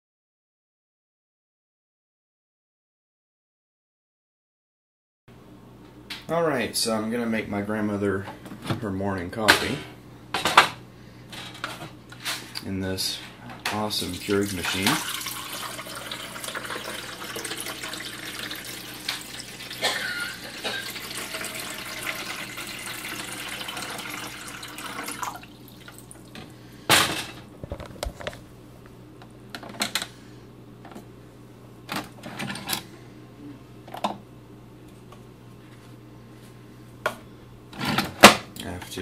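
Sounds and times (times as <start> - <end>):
coffee pouring into cup: 14.1 - 26.3.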